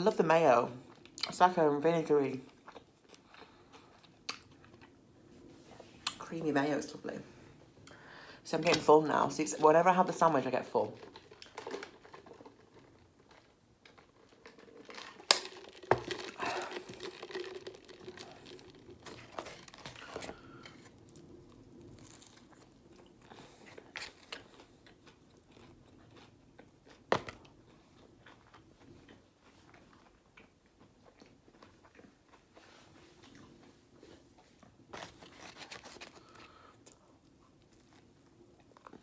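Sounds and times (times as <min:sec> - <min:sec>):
person chewing: 0:02.5 - 0:05.0, 0:11.0 - 0:39.0.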